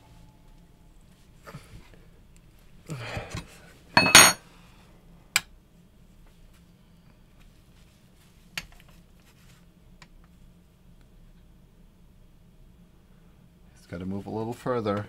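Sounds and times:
metallic clatter with ringing: 0:04.0 - 0:04.4.

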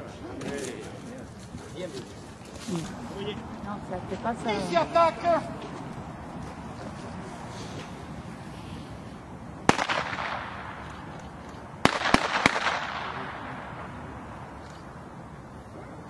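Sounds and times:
blank pistol shots with echo: 0:09.7 - 0:11.0, 0:11.8 - 0:13.9.

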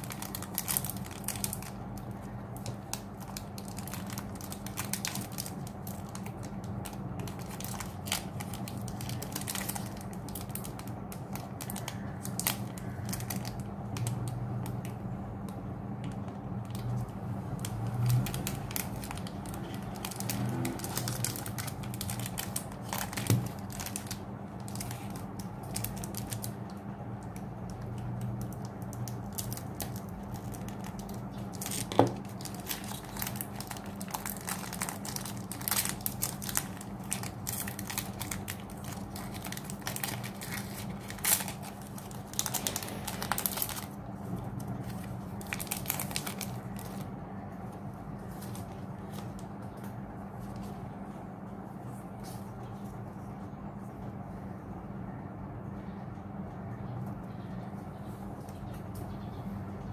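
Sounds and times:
foil wrappers crinkling and tearing: 0:00.0 - 0:15.1, 0:16.4 - 0:50.8
low steady hum: 0:00.0 - 0:59.9.

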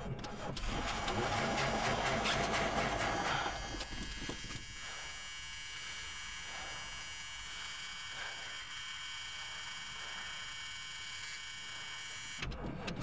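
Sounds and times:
engine starter cranking: 0:00.0 - 0:04.6.

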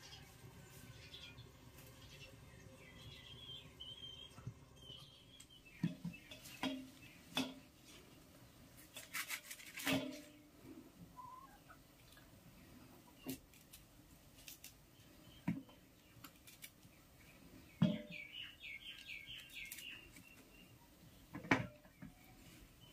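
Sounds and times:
faint bird chirping: 0:00.0 - 0:08.6, 0:14.9 - 0:22.9
cauliflower stems cracking: 0:08.9 - 0:10.3, 0:13.3 - 0:14.8, 0:16.2 - 0:16.9, 0:19.0 - 0:20.4.

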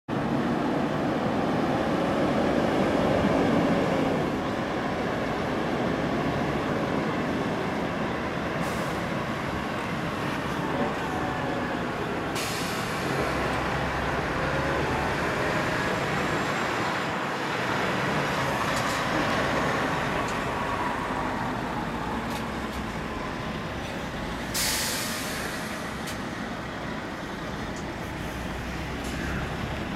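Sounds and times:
air brake hisses: 0:08.6 - 0:09.0, 0:12.3 - 0:13.2, 0:24.4 - 0:26.3.

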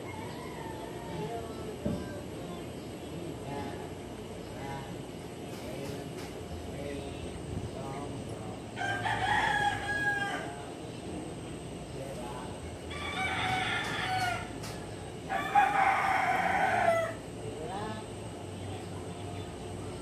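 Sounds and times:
rooster crowing: 0:00.0 - 0:01.6, 0:08.8 - 0:10.7, 0:12.9 - 0:17.3.

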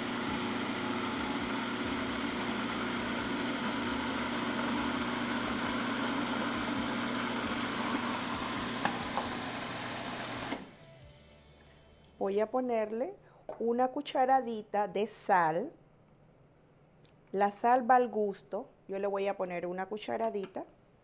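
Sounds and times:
food processor motor running: 0:00.0 - 0:10.8.

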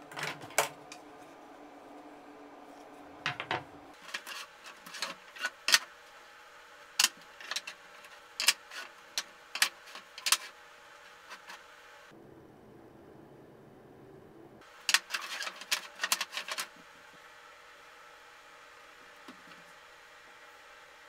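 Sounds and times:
plywood pieces knocking on wood: 0:03.3 - 0:03.7.

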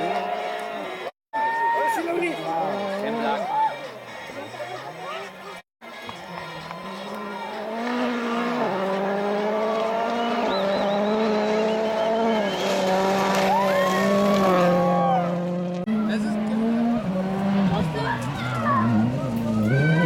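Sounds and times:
rally car engine at high revs: 0:06.3 - 0:20.0.

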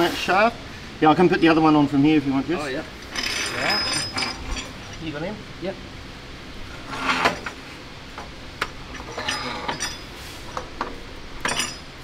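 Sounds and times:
steel parts clinking and knocking: 0:03.0 - 0:05.1, 0:08.8 - 0:10.1, 0:10.8 - 0:12.0.

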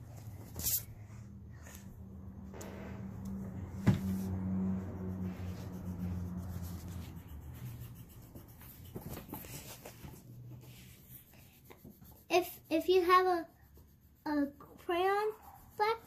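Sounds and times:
low hum: 0:00.1 - 0:08.4
pencil scratching on paper: 0:03.2 - 0:16.0.

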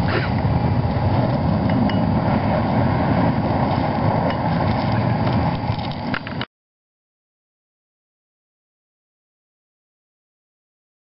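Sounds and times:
winch low mechanical rumble: 0:00.0 - 0:06.4.

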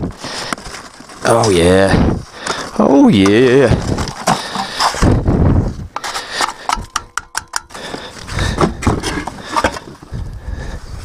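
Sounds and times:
parts rubbing and knocking: 0:02.4 - 0:10.1.

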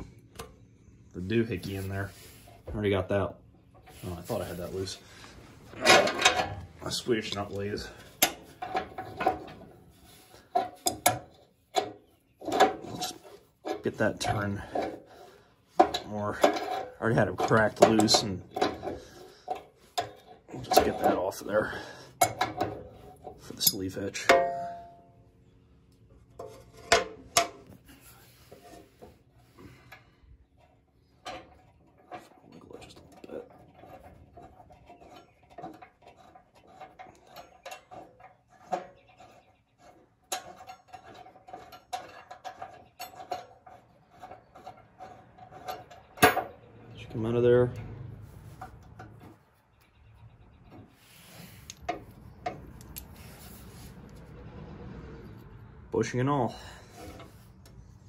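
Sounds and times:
light metal scrapes: 0:01.3 - 0:02.7, 0:03.8 - 0:10.9, 0:26.3 - 0:29.8, 0:50.7 - 0:55.6, 0:56.6 - 0:58.0
tool scraping and ticking on nut: 0:07.2 - 0:24.4, 0:31.2 - 0:46.7
wrench clinking on metal: 0:23.6 - 0:25.1.

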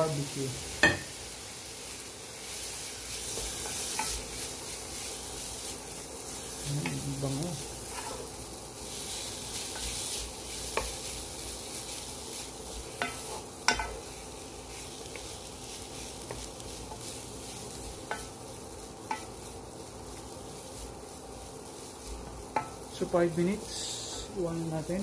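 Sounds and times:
rice sizzling in a pot: 0:00.0 - 0:25.0
wooden spatula scraping a pot: 0:07.6 - 0:08.4, 0:12.4 - 0:14.2.

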